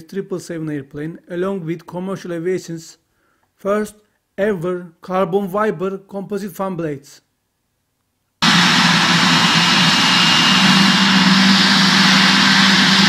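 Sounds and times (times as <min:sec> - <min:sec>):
jet engines at high thrust: 0:08.4 - 0:13.0.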